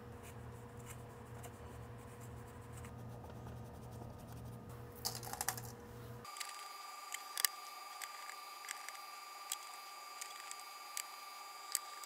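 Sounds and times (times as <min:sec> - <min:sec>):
steady low hum: 0:00.0 - 0:12.0
paper towel wiping circuit board: 0:00.2 - 0:04.7.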